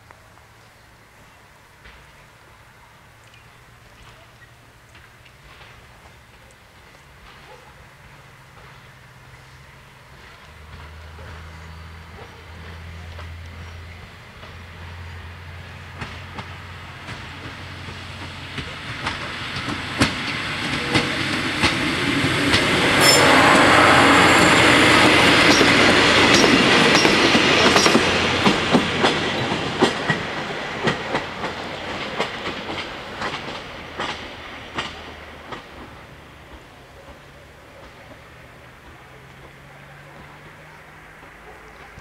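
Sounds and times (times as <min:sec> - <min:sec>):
diesel train passing: 0:04.6 - 0:42.0
wheels clicking over rail joints: 0:15.6 - 0:22.8, 0:25.5 - 0:42.0.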